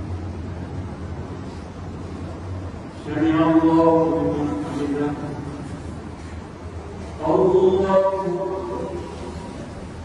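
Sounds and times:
man chanting prayer: 0:03.0 - 0:05.8, 0:07.2 - 0:09.6.

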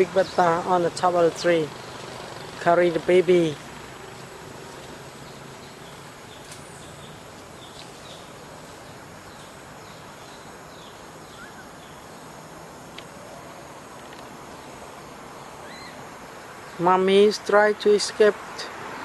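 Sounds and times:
steady forest hiss: 0:00.0 - 0:19.0
high bird chirps: 0:05.2 - 0:12.1, 0:15.6 - 0:16.0.

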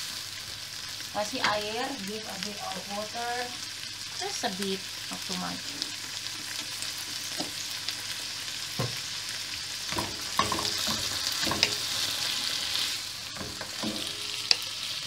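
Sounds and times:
vegetables sizzling in frying pan: 0:00.0 - 0:15.0.

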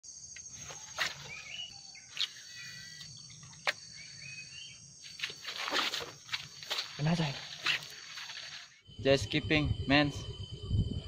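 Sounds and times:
insects droning: 0:00.0 - 0:11.0
bird calling: 0:00.5 - 0:08.7.

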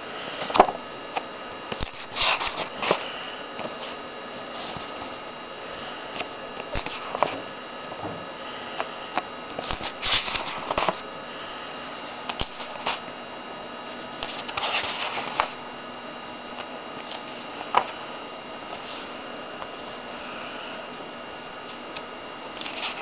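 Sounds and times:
comic book pages rustling: 0:01.7 - 0:05.2, 0:06.2 - 0:07.4, 0:09.6 - 0:11.0, 0:12.3 - 0:13.0, 0:14.0 - 0:15.6, 0:22.5 - 0:23.0.

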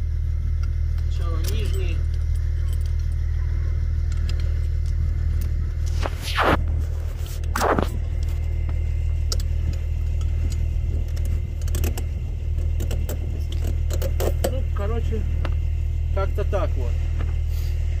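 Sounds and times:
low rumble: 0:00.0 - 0:18.0
tire chain links clinking: 0:00.5 - 0:05.6, 0:08.0 - 0:15.8
short rasping sweeps: 0:05.8 - 0:08.0.

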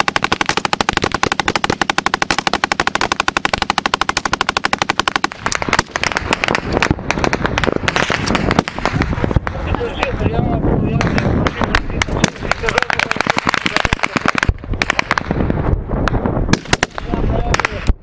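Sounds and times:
automatic gunfire: 0:00.0 - 0:09.8, 0:11.0 - 0:15.5, 0:16.1 - 0:18.0.

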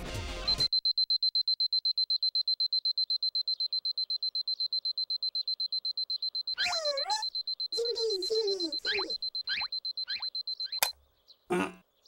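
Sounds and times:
alarm clock beeping: 0:00.5 - 0:11.0.

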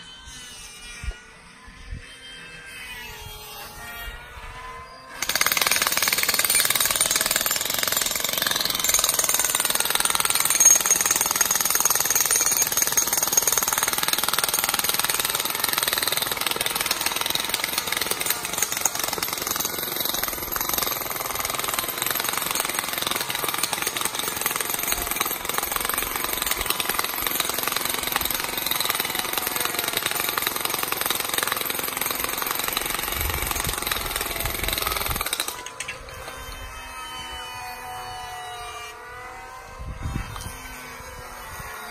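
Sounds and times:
jackhammer hammering rocky ground: 0:05.2 - 0:36.6.

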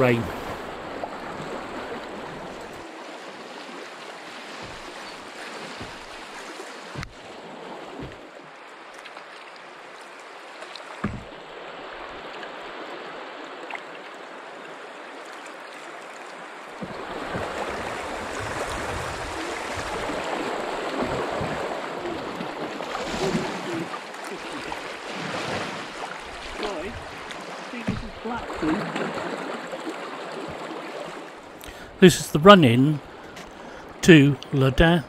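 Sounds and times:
river water rushing and splashing: 0:00.0 - 0:35.0
knock on canoe hull: 0:04.6 - 0:05.0, 0:05.8 - 0:06.4, 0:11.0 - 0:11.3, 0:27.9 - 0:28.2.

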